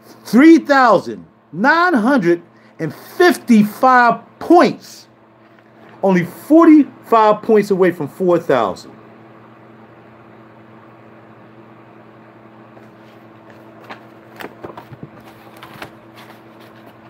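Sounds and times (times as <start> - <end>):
low room hum: 0.0 - 17.0
folder clicks and rustles: 13.4 - 17.0.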